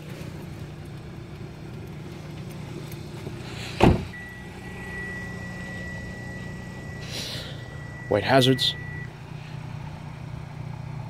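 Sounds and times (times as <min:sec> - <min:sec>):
car idling hum: 0:00.0 - 0:11.0
car door shutting thud: 0:03.7 - 0:04.3.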